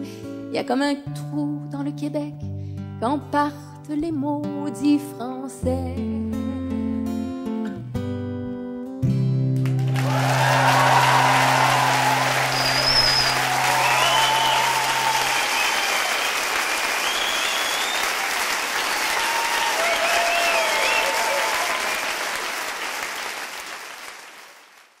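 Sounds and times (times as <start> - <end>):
audience applauding: 9.6 - 25.0
scattered cheers: 9.8 - 23.0.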